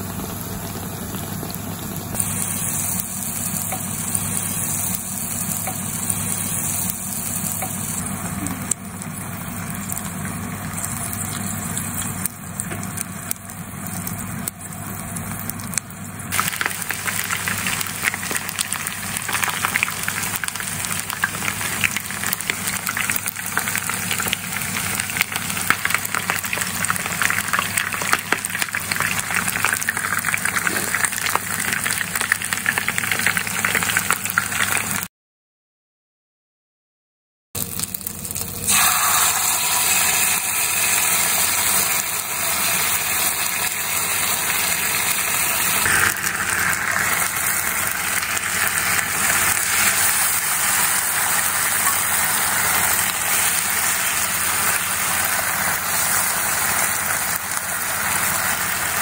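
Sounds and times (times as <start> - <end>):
food deep-frying in oil: 0.0 - 35.1, 37.6 - 59.0.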